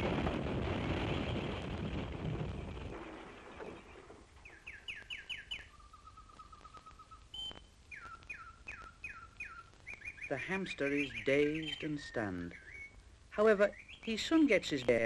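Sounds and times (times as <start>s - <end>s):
birds whistling and trilling: 3.3s - 13.0s, 13.6s - 14.3s.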